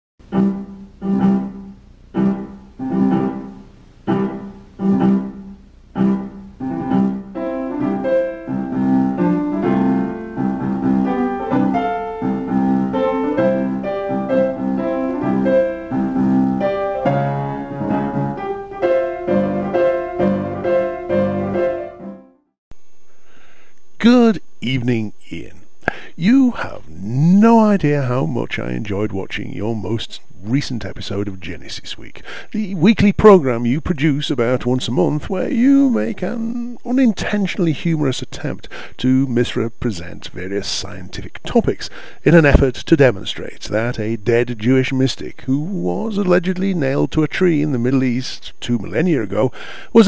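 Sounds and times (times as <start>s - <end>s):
piano music: 0.2s - 22.4s.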